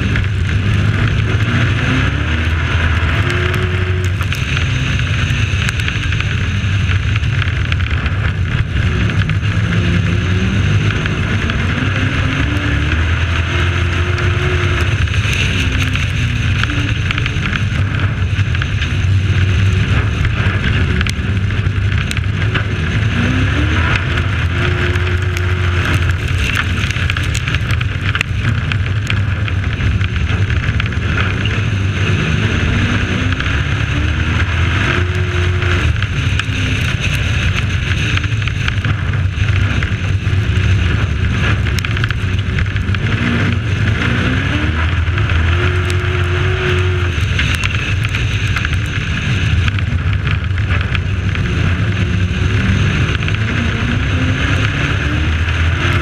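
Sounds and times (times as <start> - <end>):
race truck engine running hard: 0.0 - 56.0
wind and road noise: 0.0 - 56.0.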